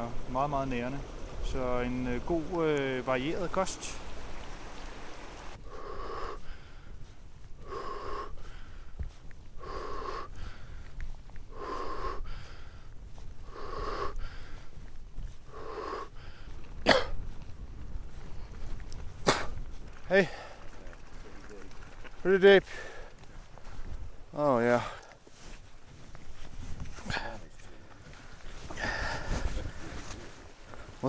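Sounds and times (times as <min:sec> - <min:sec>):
person breathing heavily: 0:05.6 - 0:17.4, 0:19.4 - 0:20.7, 0:22.6 - 0:24.0, 0:27.0 - 0:31.0.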